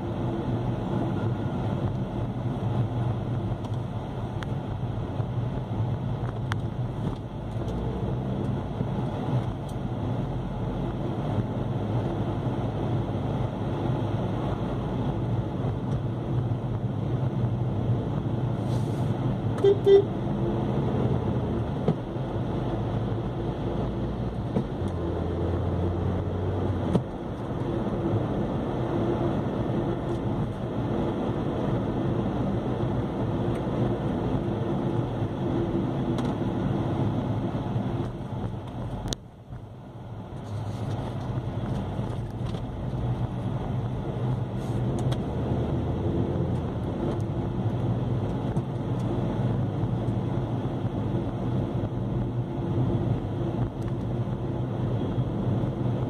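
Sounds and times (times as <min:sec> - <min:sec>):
vehicle engine and road noise: 0:00.0 - 0:56.0
car horn toots: 0:19.6 - 0:20.2.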